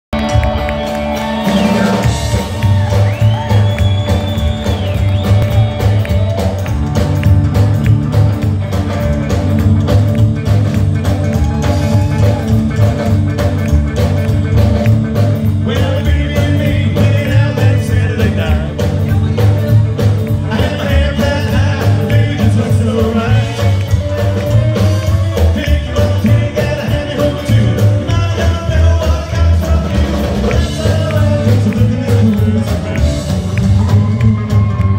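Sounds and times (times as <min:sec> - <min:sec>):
live rockabilly band playing: 0:00.1 - 0:34.9
man singing lead: 0:15.4 - 0:24.0, 0:25.1 - 0:33.8.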